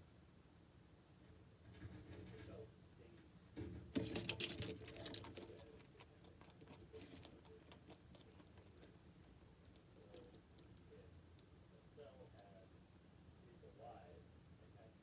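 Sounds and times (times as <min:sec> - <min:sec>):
lizard claws scratching: 0:03.9 - 0:10.9.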